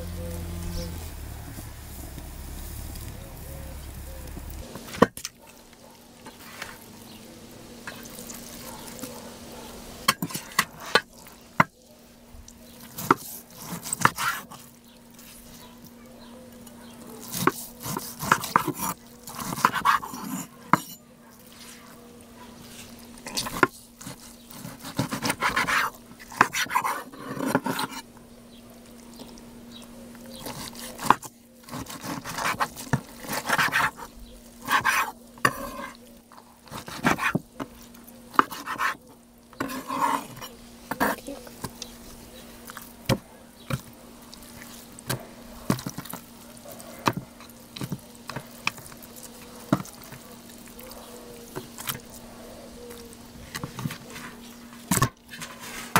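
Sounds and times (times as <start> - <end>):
knife slicing steak: 17.2 - 21.6.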